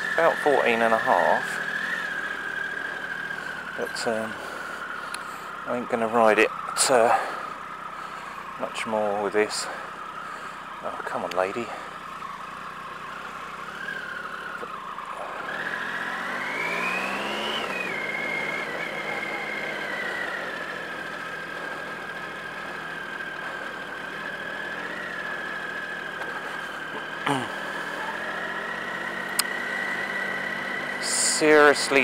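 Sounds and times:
motorcycle engine pulling away: 0.0s - 8.8s, 9.5s - 32.0s.

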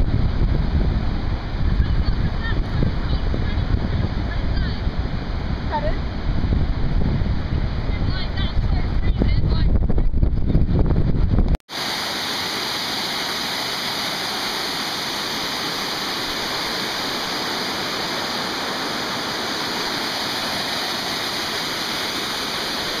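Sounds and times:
rushing water: 0.0s - 9.4s, 11.7s - 23.0s.

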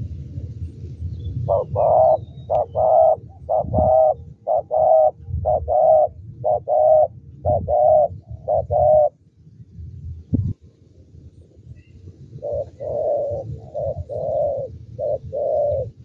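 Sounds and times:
dove cooing: 1.4s - 9.2s, 12.3s - 16.0s.

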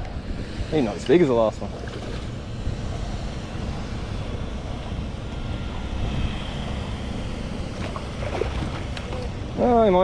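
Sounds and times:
wind rumble on microphone: 0.0s - 10.0s
water sloshing beside boat: 1.7s - 2.6s, 7.7s - 9.5s.

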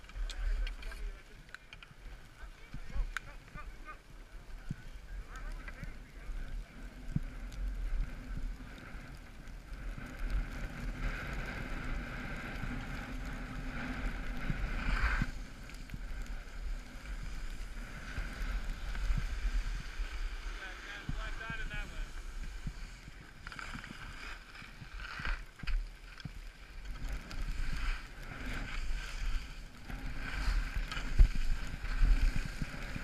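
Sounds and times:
sliding on packed snow: 0.0s - 33.0s.

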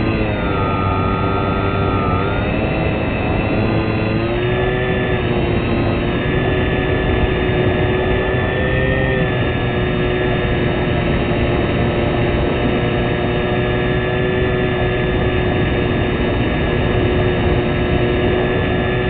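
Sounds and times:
model plane motor and propeller: 0.0s - 19.0s.

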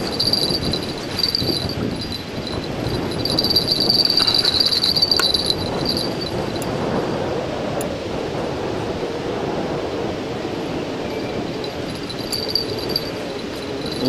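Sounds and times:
insects chirring: 0.0s - 6.6s, 11.5s - 14.0s
rough rushing noise: 0.0s - 7.2s, 11.4s - 14.0s.

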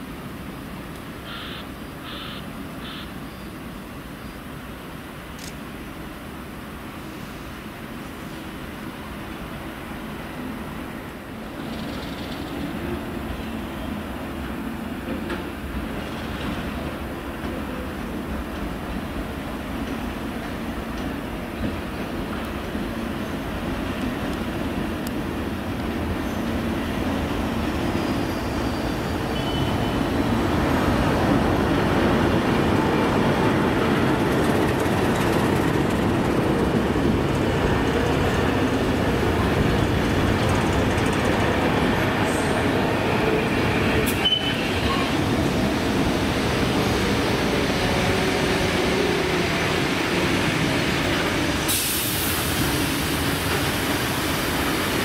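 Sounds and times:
train wheels rumbling on track: 0.0s - 55.0s
steam hiss: 6.9s - 8.6s, 46.6s - 55.0s.

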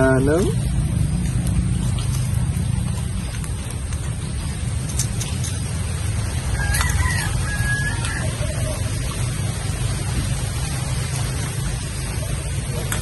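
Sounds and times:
steady low rumble: 0.0s - 13.0s
rooster crowing: 6.4s - 9.2s.

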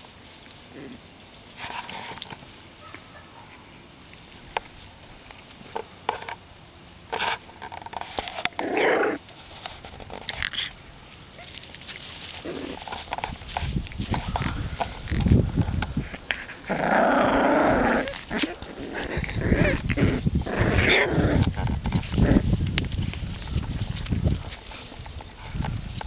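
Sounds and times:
small knocks and rustles: 4.1s - 10.7s, 11.4s - 16.6s, 18.1s - 26.0s
puppies growling: 8.5s - 9.2s, 12.4s - 13.0s, 16.3s - 22.5s.

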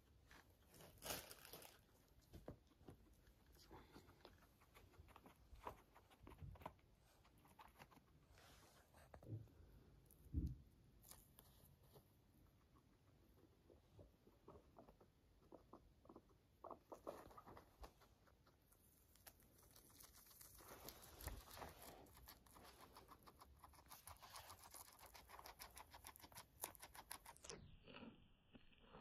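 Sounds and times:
guinea pig chewing: 0.0s - 29.0s.

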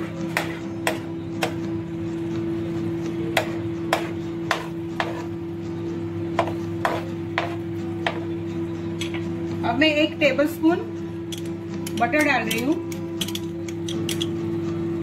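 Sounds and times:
spatula knocking frying pan: 6.4s - 8.2s.

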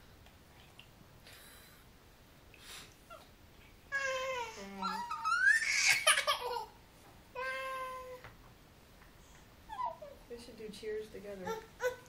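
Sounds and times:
toddler squealing: 4.8s - 6.6s
toddler babbling and laughing: 9.7s - 10.2s.

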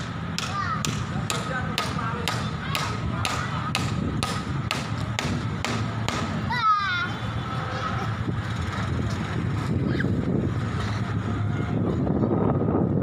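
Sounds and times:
low rumble of road traffic: 0.0s - 13.0s.

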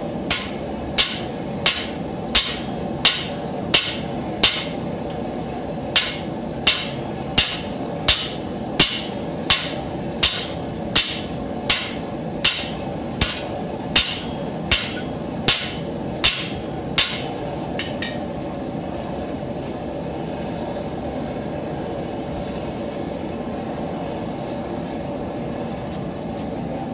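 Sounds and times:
gas forge burner rushing: 0.0s - 26.9s
hammer ringing on anvil: 0.3s - 4.7s, 6.0s - 18.2s.

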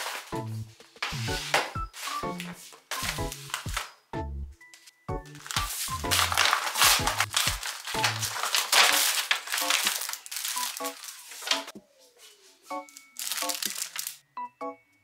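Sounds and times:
paper and plastic packaging crinkling: 0.0s - 0.4s, 1.0s - 4.0s, 5.3s - 11.7s, 12.8s - 14.2s
soft melodic background music: 0.0s - 15.0s.

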